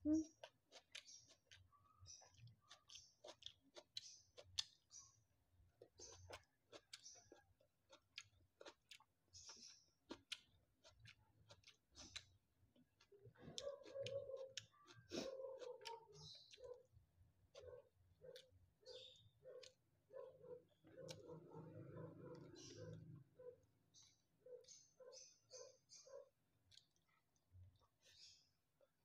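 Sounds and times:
soft chewing: 0:00.1 - 0:29.0
mouth clicks and lip smacks: 0:00.4 - 0:05.0, 0:05.8 - 0:16.9.

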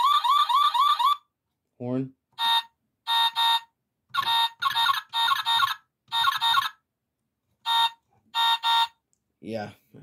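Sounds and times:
toy car electronic horn honks: 0:02.4 - 0:06.8, 0:07.6 - 0:09.0.

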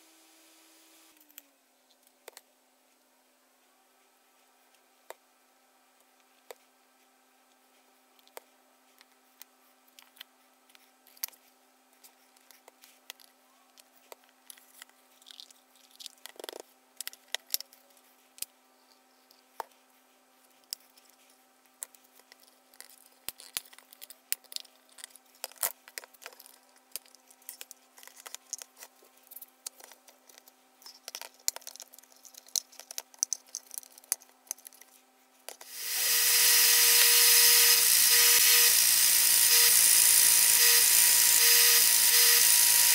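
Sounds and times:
belt sander motor running: 0:35.6 - 0:42.9.

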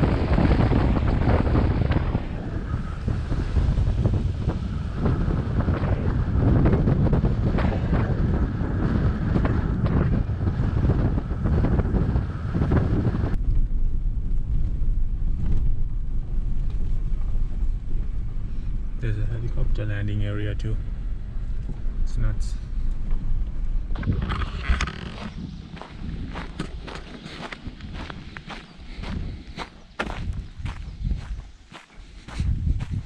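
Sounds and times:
truck rumble inside cab: 0:00.0 - 0:24.4
road rumble: 0:00.0 - 0:33.0
wind buffeting microphone: 0:00.0 - 0:33.0.

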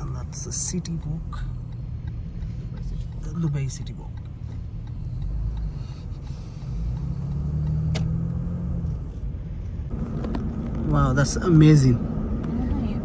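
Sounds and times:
car engine and road noise: 0:00.0 - 0:13.0
sharp click: 0:07.6 - 0:08.2.

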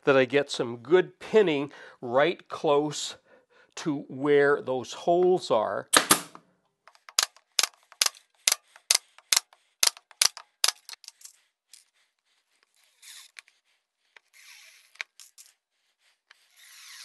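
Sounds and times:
pin nailer firing: 0:06.0 - 0:06.4
cordless driver driving screws: 0:06.9 - 0:11.3, 0:14.2 - 0:15.6, 0:16.3 - 0:17.0.

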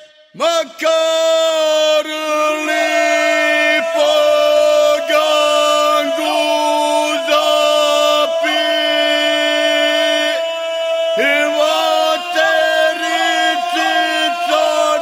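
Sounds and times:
male voices singing long notes: 0:00.0 - 0:15.0.

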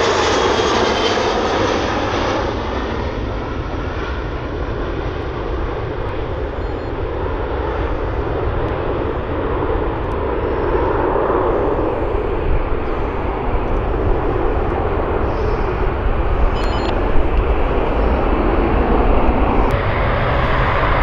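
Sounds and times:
jet airliner roar: 0:00.0 - 0:21.0.

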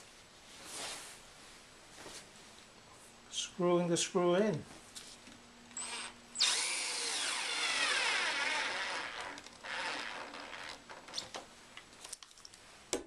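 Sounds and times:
cordless drill whining: 0:05.8 - 0:10.8.

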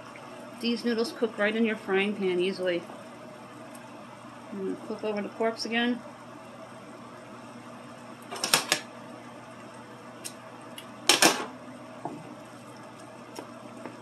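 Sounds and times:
wooden spoon knocking on skillet: 0:12.0 - 0:12.3.

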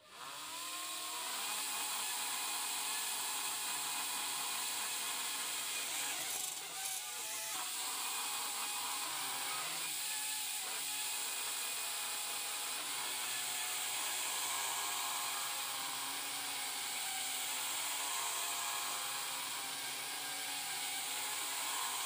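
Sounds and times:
quadcopter motors whining: 0:00.0 - 0:22.0.

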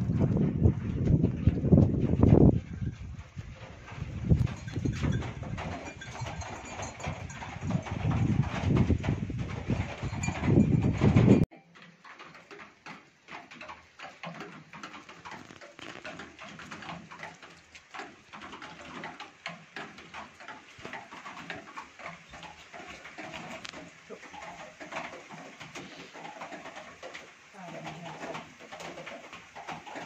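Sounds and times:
wind buffeting microphone: 0:00.0 - 0:11.5
light rain pattering: 0:11.5 - 0:30.0.

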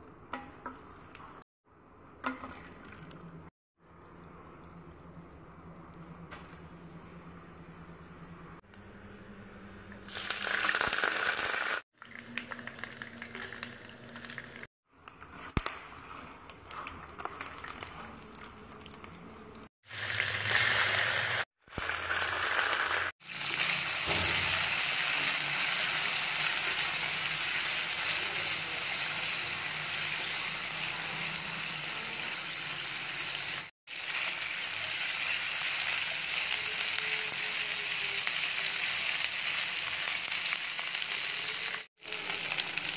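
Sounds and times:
spices sputtering in hot oil: 0:10.0 - 0:14.7, 0:19.8 - 0:42.9
meat sizzling in oil: 0:10.1 - 0:11.8, 0:19.8 - 0:42.9.

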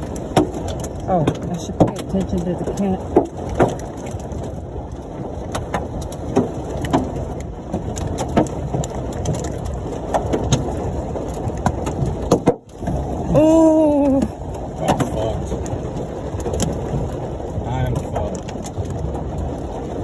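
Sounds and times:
hailstones knocking on car roof: 0:00.0 - 0:20.0
heavy rain on car: 0:00.0 - 0:20.0.

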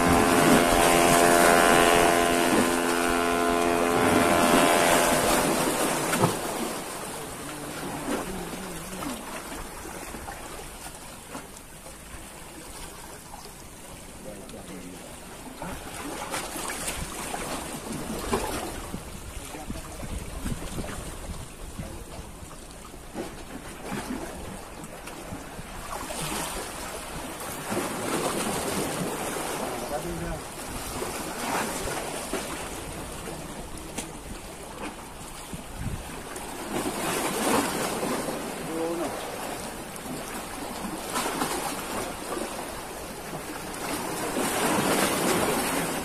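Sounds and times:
wind on microphone: 0:00.0 - 0:09.0, 0:16.8 - 0:22.7, 0:30.0 - 0:36.4
sea waves washing against boulders: 0:00.0 - 0:46.0.

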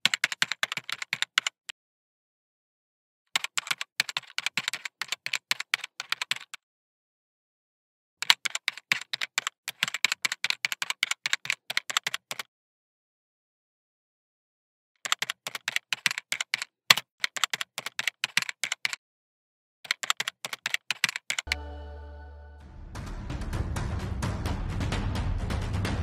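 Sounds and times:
keyboard typing clicks: 0:00.0 - 0:01.7, 0:03.4 - 0:06.6, 0:08.2 - 0:12.5, 0:15.0 - 0:19.0, 0:19.9 - 0:21.8.

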